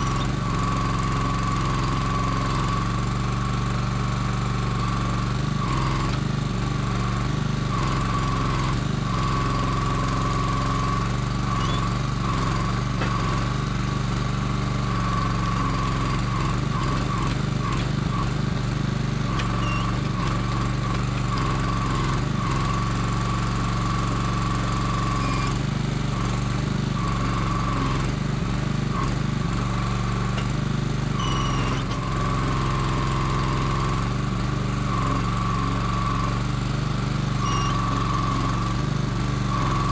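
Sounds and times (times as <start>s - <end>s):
small engine running: 0.0s - 39.9s
hydraulic crane whine: 25.0s - 28.1s, 31.1s - 32.2s.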